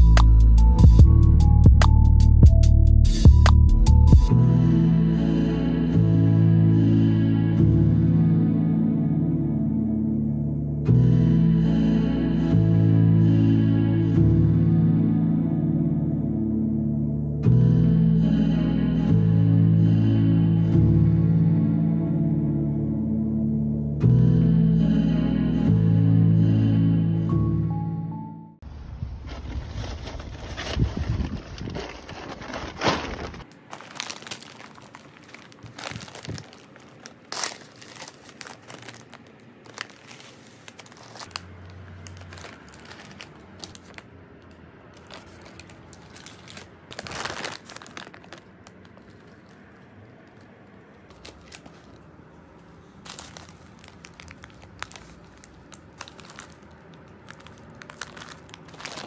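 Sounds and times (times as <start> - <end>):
low outdoor rumble: 28.6 - 59.0
snack packets crinkling: 29.3 - 44.1, 45.0 - 50.5, 51.1 - 52.1, 53.0 - 59.0.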